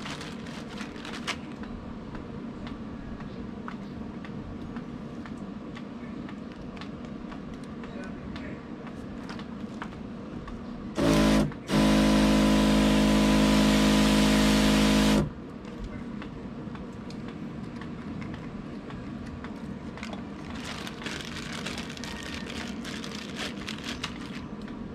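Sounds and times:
electric pump humming: 10.9 - 15.4.

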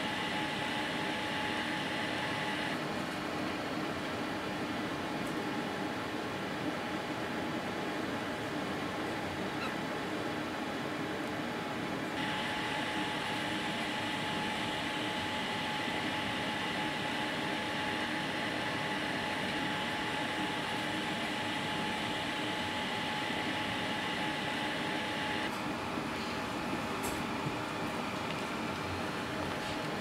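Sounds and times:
thin high whine: 0.0 - 2.8, 12.2 - 25.5
mechanical hum: 0.0 - 30.0.

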